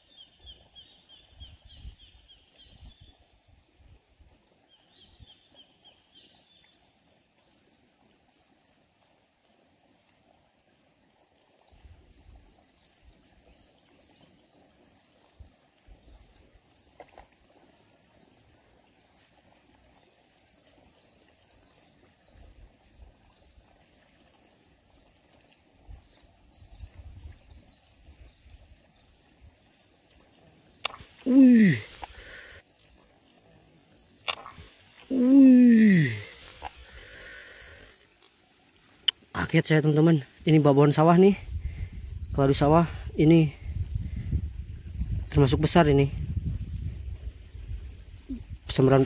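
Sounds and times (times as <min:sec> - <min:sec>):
insect buzz: 0:26.0 - 0:40.8
faint chirps: 0:30.2 - 0:41.5.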